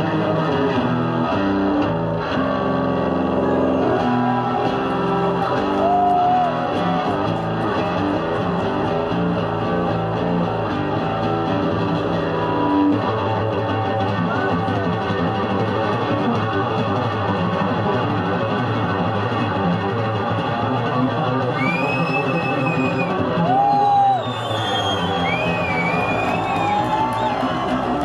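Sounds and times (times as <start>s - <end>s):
electric bass guitar solo: 0.0s - 24.2s.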